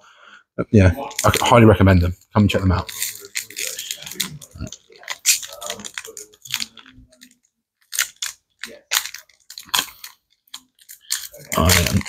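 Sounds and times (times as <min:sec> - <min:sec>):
foil wrapper crinkling: 0:01.0 - 0:01.6, 0:02.8 - 0:12.0.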